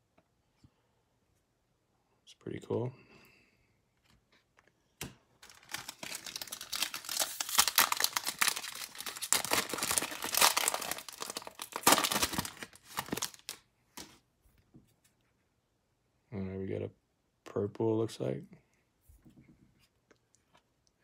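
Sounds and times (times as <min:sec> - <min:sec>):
wrapper tearing and crinkling: 0:05.4 - 0:13.6.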